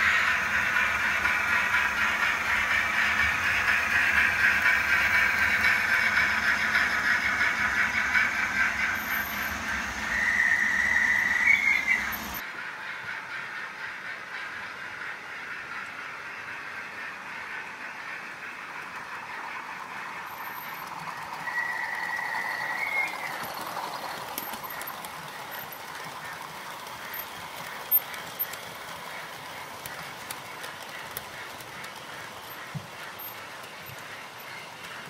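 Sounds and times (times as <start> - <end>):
wheels ticking: 0.0 - 12.5, 18.2 - 35.0
model train whirring: 0.0 - 35.0
high squeal: 7.7 - 12.4.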